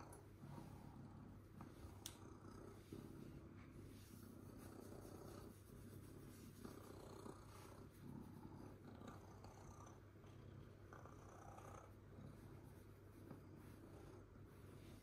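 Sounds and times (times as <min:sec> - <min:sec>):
cat purring faintly: 0:00.0 - 0:15.0.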